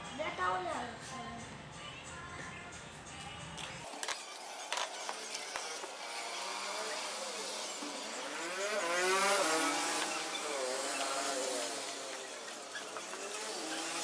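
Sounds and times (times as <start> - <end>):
pitched hum gliding upward: 5.1 - 14.0.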